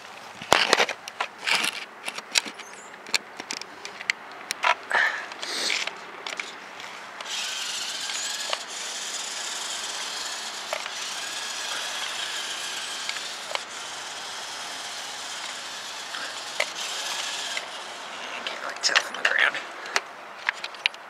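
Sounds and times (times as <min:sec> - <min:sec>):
toy truck motor and gearbox: 0:00.0 - 0:04.0, 0:05.3 - 0:21.0
sharp clicks: 0:15.4 - 0:17.8.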